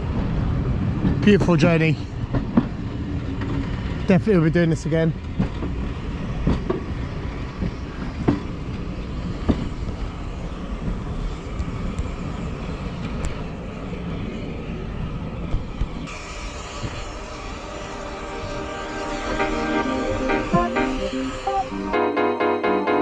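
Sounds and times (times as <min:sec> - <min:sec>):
steam train rumbling on rails: 0:00.0 - 0:23.0
background music: 0:17.6 - 0:23.0.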